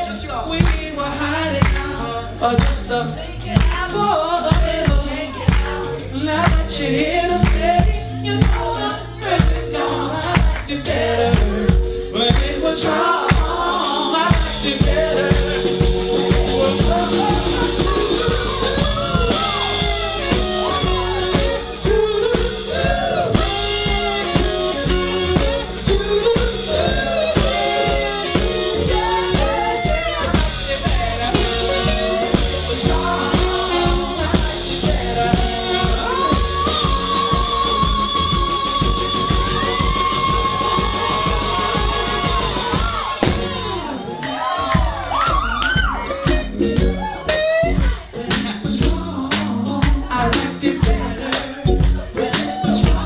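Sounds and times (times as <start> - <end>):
man singing: 0.0 - 43.9, 47.6 - 53.0
live soul band playing: 0.0 - 53.0
saxophones: 6.8 - 44.6.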